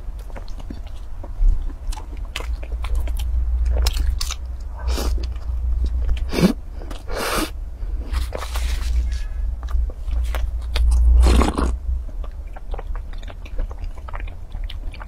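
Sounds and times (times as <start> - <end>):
steady low hum: 0.0 - 15.0
wet chewing clicks: 0.1 - 7.1, 9.6 - 15.0
sipping and slurping: 10.9 - 11.8.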